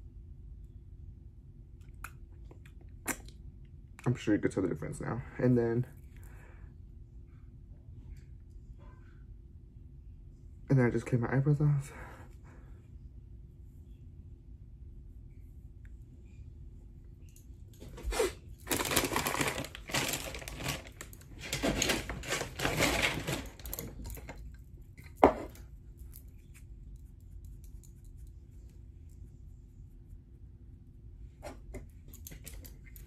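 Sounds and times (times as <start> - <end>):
small hard items rattling: 18.6 - 24.4
object set down knock: 25.2 - 25.5.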